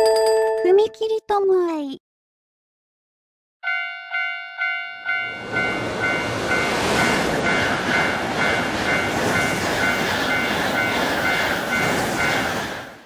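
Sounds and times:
level crossing bell clanging: 0.0s - 0.8s, 3.6s - 12.0s
train passing: 4.1s - 13.0s.

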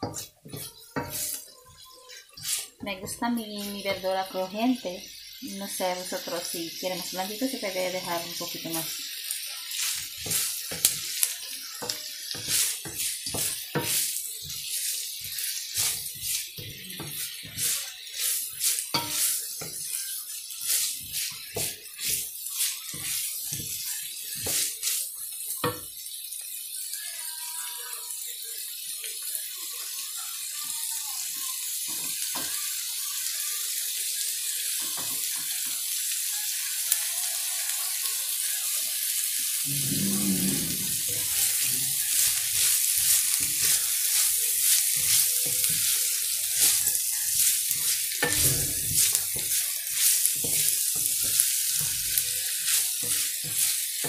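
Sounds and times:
wooden spatula scraping a pan: 0.0s - 1.5s, 2.2s - 4.0s, 9.7s - 25.2s, 39.7s - 54.0s
food sizzling in a wok: 0.0s - 54.0s.

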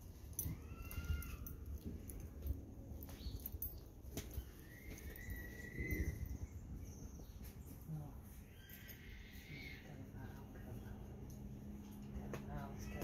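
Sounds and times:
small dog whining: 0.4s - 2.2s, 4.4s - 6.6s.

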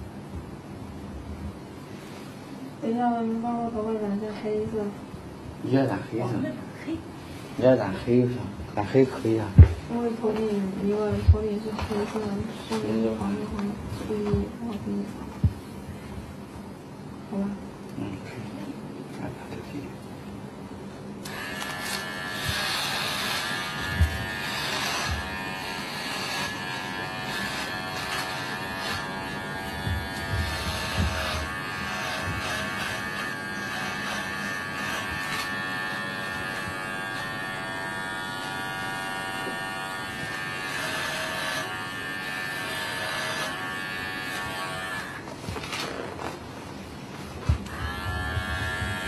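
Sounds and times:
electric hair clipper buzzing: 21.2s - 45.8s, 47.6s - 49.0s.

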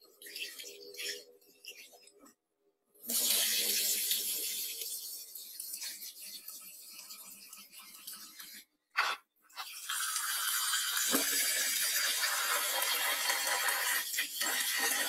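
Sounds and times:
tap water running into pot: 9.6s - 15.0s.

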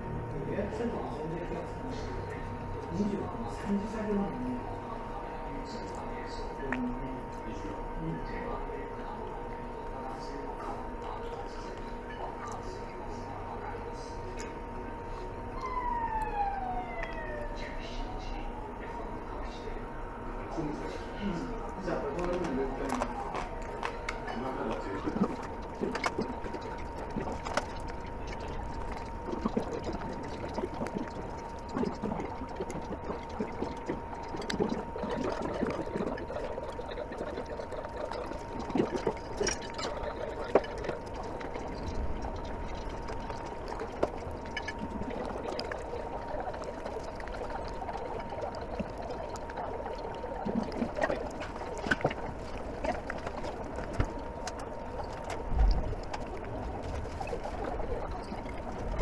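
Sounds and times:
steady high tone: 15.5s - 18.7s.

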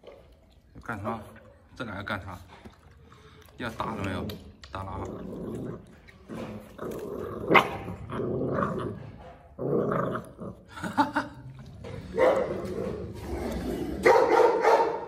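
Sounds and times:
puppies growling: 3.8s - 11.0s, 11.6s - 14.1s.

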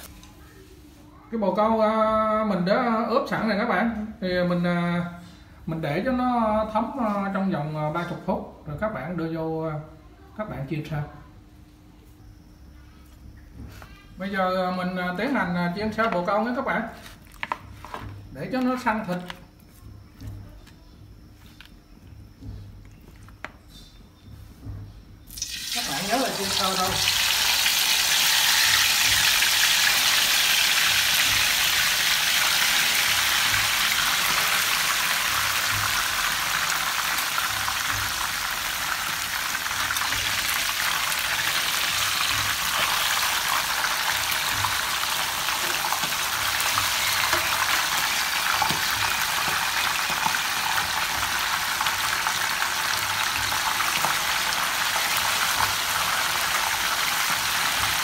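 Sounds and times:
meat sizzling in hot oil: 25.3s - 58.0s.

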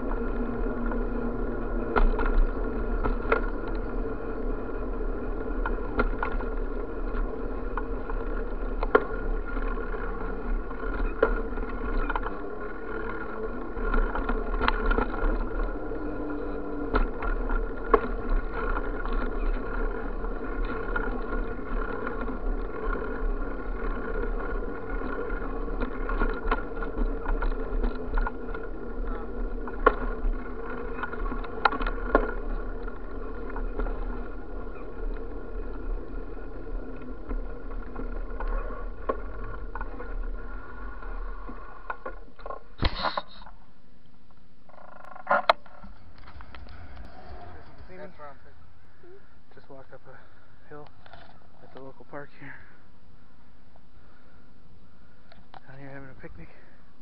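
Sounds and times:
wheels knocking over cracks: 0.0s - 43.6s
bicycle rolling on pavement: 0.0s - 57.0s.

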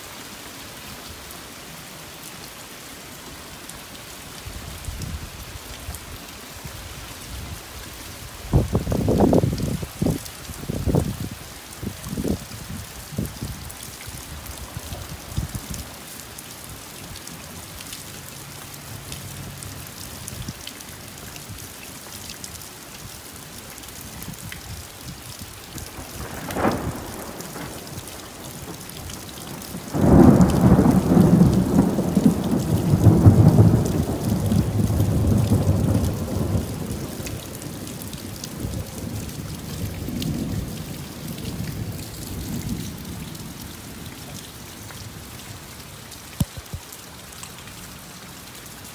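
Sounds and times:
rain falling steadily: 0.0s - 48.9s
loud peal of thunder: 26.1s - 27.9s, 29.9s - 37.1s
thunder crack: 26.2s - 27.9s, 29.9s - 36.7s.

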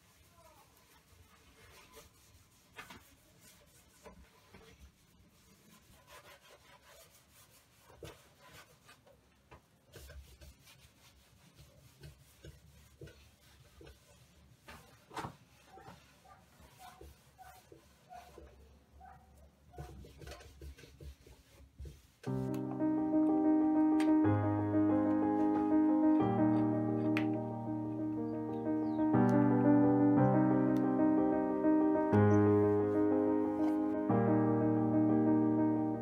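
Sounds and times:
cloth rubbing wood: 0.0s - 9.1s, 9.9s - 18.6s, 19.7s - 22.6s.

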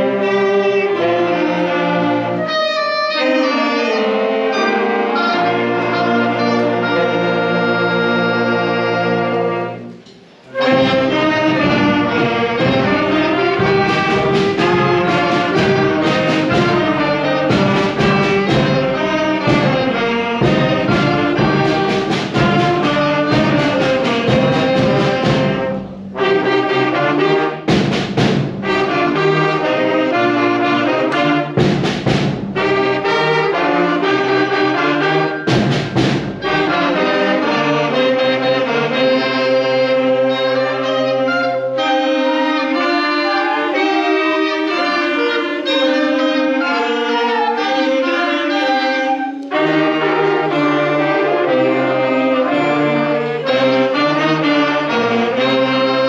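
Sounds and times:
concert band playing chords: 3.2s - 40.4s
percussion crashes: 31.6s - 32.7s, 35.4s - 36.6s.

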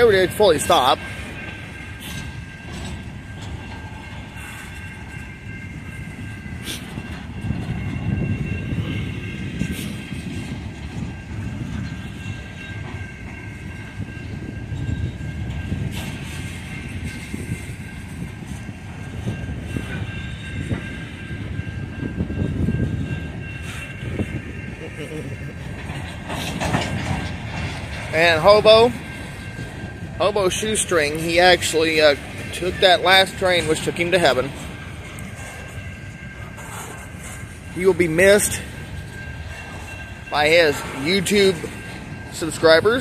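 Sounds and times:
train wheels rumbling: 0.0s - 43.0s
wheels and couplers clanking: 0.0s - 43.0s
high ringing tone: 11.0s - 26.1s.

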